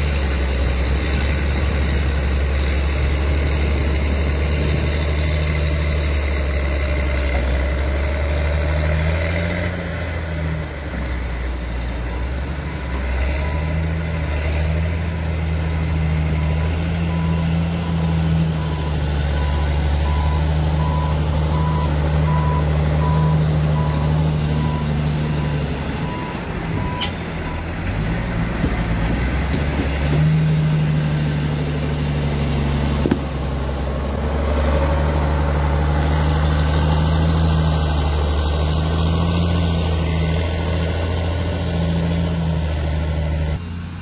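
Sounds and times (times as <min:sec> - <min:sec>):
diesel truck engine droning: 0:00.0 - 0:44.0
reversing alarm beeping: 0:16.3 - 0:27.7.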